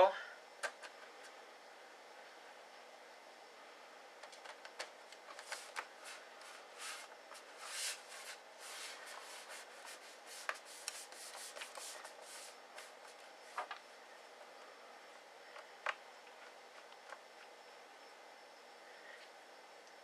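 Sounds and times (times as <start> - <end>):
hands rubbing on metal case: 5.3 - 13.1.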